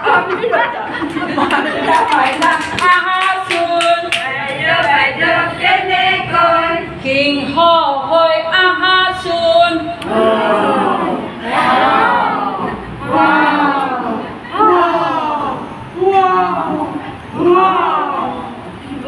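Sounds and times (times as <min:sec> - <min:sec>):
women singing together: 0:00.0 - 0:18.6
several voices talking: 0:10.0 - 0:19.0.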